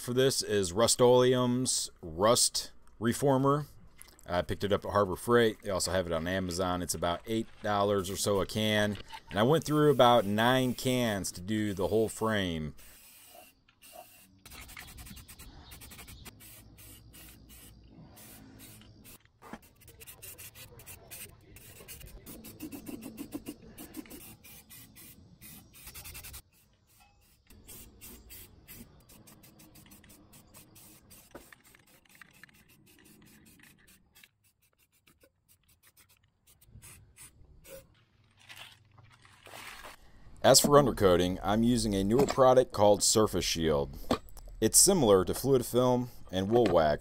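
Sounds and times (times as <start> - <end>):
spray-paint can spraying: 12.8 - 37.8.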